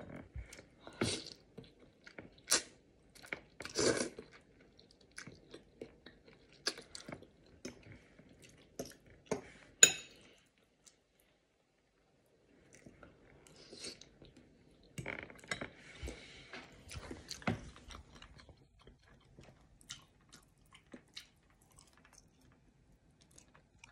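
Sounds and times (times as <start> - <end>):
wet chewing and lip smacks: 16.9 - 22.6.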